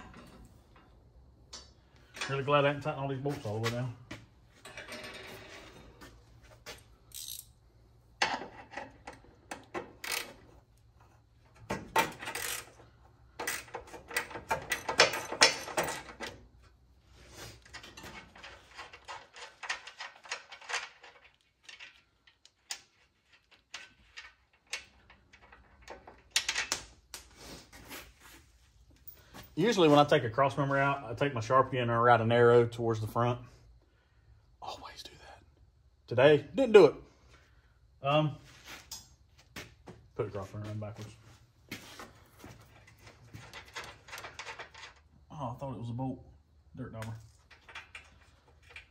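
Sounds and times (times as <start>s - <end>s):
tools and bolts clinking on metal: 4.6s - 6.2s, 6.8s - 7.6s, 11.5s - 16.7s, 17.6s - 26.9s, 38.8s - 39.2s, 42.4s - 45.1s, 47.0s - 48.9s.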